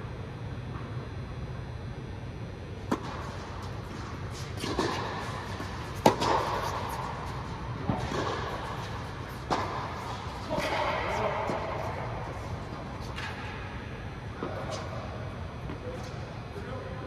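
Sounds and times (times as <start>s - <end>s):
steady low hum: 0.0s - 17.0s
tennis balls struck by racquets: 2.8s - 13.7s.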